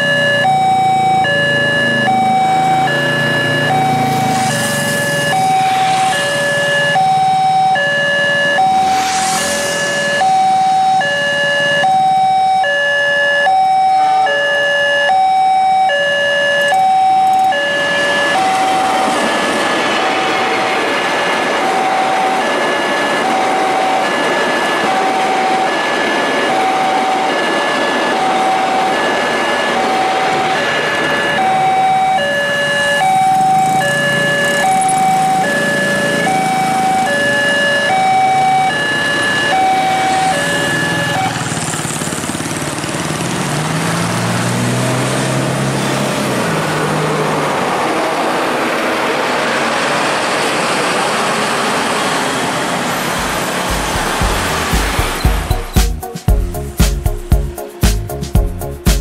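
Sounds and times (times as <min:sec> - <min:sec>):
train passing: 0:00.0 - 0:12.7, 0:16.9 - 0:58.8
two-tone warning chime: 0:00.0 - 0:19.6, 0:21.5 - 0:41.6, 0:52.9 - 0:56.4.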